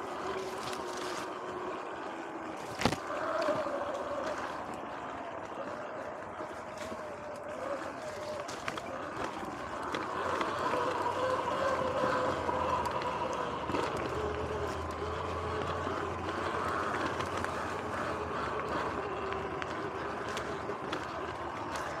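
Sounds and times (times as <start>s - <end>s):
electric motor and chain whine: 0.0s - 22.0s
tyre noise on dirt: 0.0s - 22.0s.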